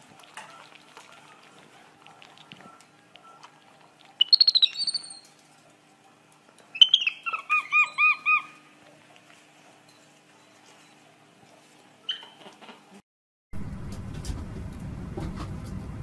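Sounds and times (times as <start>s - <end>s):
monkey squeaky chirps: 4.2s - 5.3s, 6.7s - 8.6s, 12.1s - 12.5s
monkey whistled notes: 4.2s - 5.3s.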